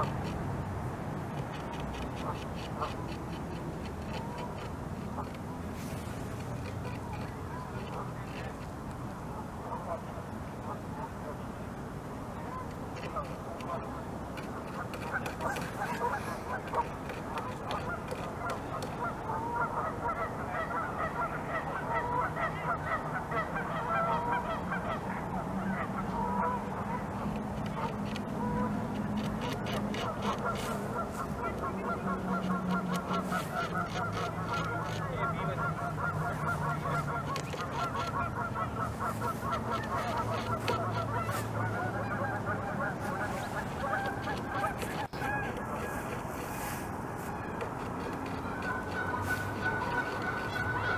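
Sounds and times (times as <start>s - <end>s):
beaver gnawing wood: 1.2s - 9.0s, 12.7s - 19.2s, 26.2s - 50.9s
geese honking: 12.4s - 50.9s.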